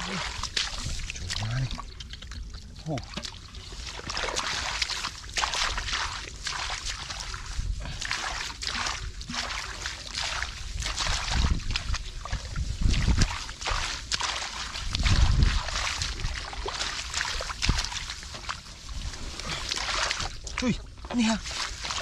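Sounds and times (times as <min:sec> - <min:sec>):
water dripping: 0:00.0 - 0:07.3
hands splashing in muddy water: 0:00.0 - 0:22.0.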